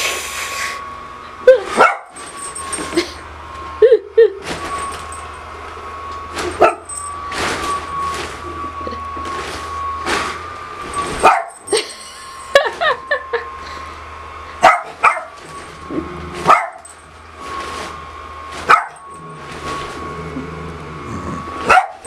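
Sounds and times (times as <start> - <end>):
blower fan humming: 0.0 - 22.0
small dog barking: 1.8 - 2.2, 6.6 - 6.9, 11.2 - 11.6, 14.6 - 15.4, 16.4 - 16.8, 18.7 - 19.0, 21.6 - 22.0.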